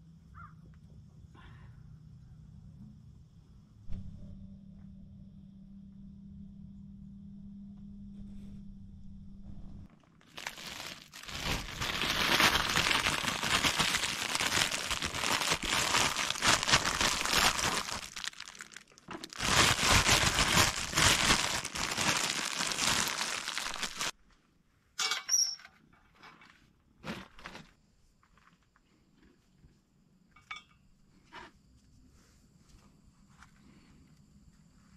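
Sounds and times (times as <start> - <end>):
plastic bag crinkling: 10.2 - 24.1.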